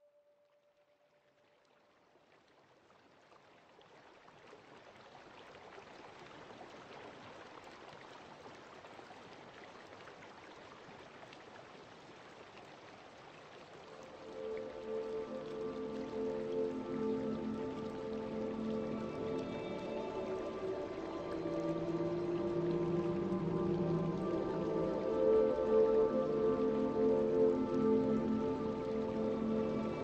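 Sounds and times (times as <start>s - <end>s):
rain-like hiss with crackling drops: 2.0s - 30.0s
ambient music: 14.0s - 30.0s.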